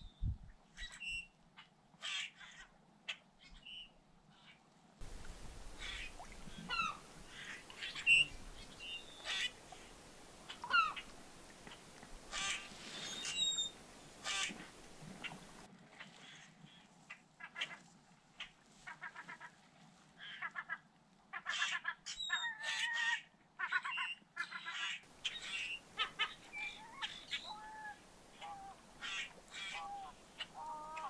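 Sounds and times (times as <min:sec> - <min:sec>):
herons squawking harshly: 0:05.0 - 0:15.6, 0:24.8 - 0:31.0
bird calls: 0:05.0 - 0:15.7, 0:23.8 - 0:31.0.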